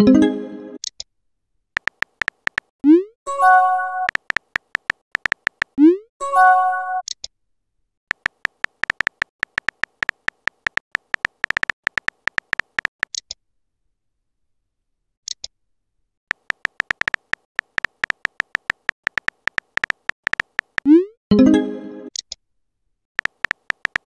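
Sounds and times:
phone keyboard typing clicks: 1.8 - 2.7, 4.0 - 5.8, 8.1 - 13.2, 16.3 - 20.9, 23.2 - 24.0.

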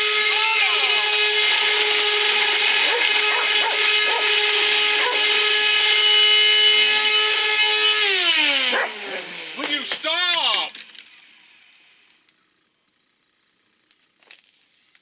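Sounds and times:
vacuum cleaner motor whining: 0.0 - 11.9
dog barking: 2.8 - 4.3, 5.0 - 5.3, 8.7 - 9.1.

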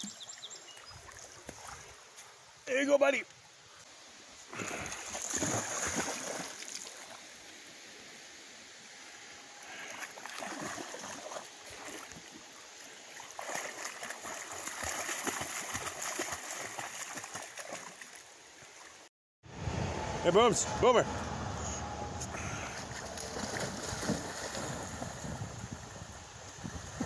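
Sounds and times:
dog splashing through water: 4.6 - 7.1, 9.9 - 12.4, 13.1 - 18.2, 22.9 - 25.4.

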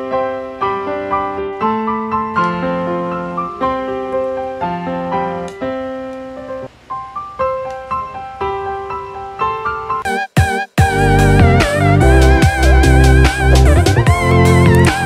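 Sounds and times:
gentle piano music: 0.0 - 10.2, 10.8 - 15.0.

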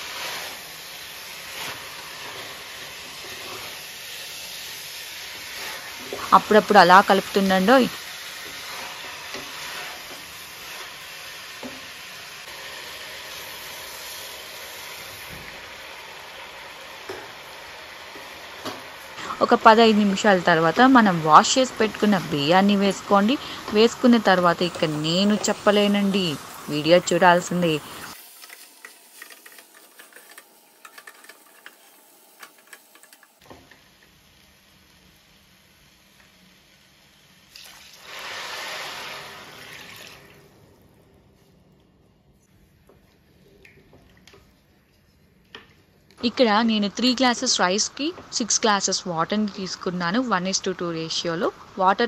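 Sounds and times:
chicken sizzling in a pot: 0.0 - 41.5
stirring scrapes: 8.4 - 11.0, 28.3 - 33.2.

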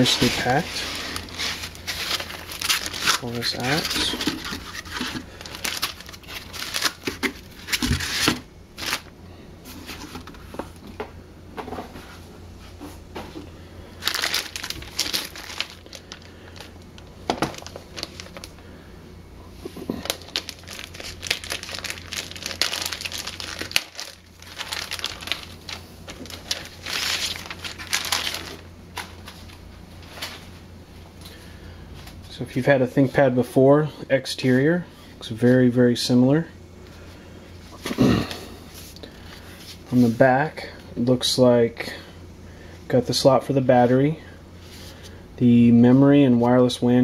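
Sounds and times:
plastic bag crinkling: 0.0 - 9.1, 14.0 - 18.7, 19.8 - 30.4.

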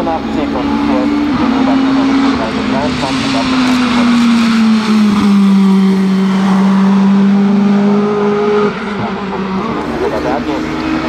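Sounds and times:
race car engine at high revs: 0.0 - 11.0.

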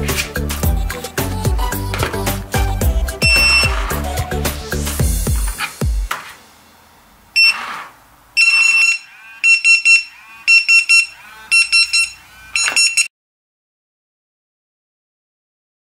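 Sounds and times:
pager beeping: 3.2 - 3.8, 7.4 - 7.6, 8.4 - 13.1.

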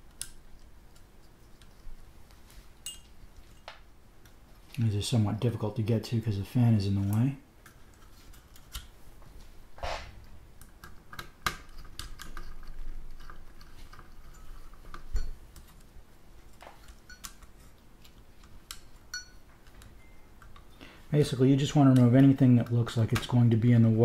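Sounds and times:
faint metallic pings: 19.1 - 19.4, 20.0 - 20.3.

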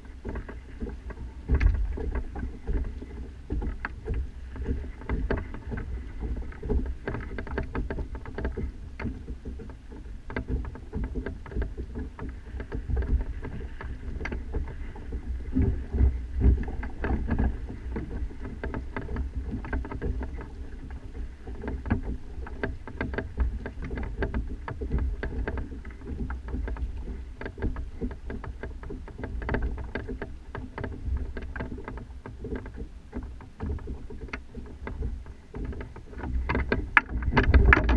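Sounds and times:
mast and rig knocking and rattling: 0.0 - 37.9
wind buffeting microphone: 35.8 - 37.9.

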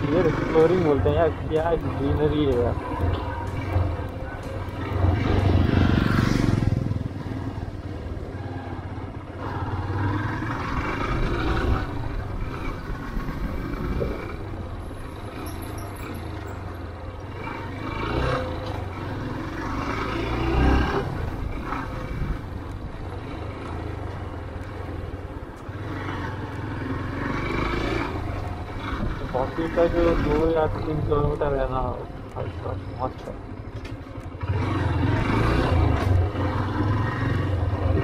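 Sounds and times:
wind noise on microphone: 11.5 - 14.6.

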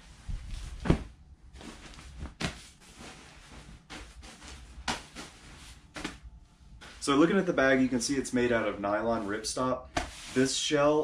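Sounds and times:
sleeping bag rustling: 0.0 - 6.2.

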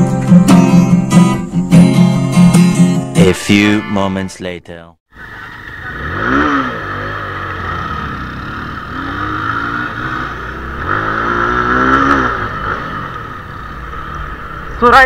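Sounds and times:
motorcycle engine revving: 5.2 - 15.0.

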